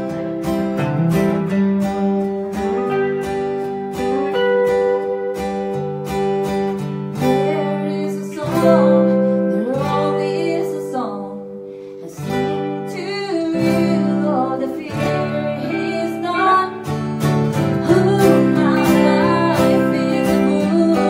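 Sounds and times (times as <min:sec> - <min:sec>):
electric guitar: 0:00.0 - 0:21.0
strummed acoustic guitar: 0:00.0 - 0:21.0
woman singing: 0:07.2 - 0:21.0.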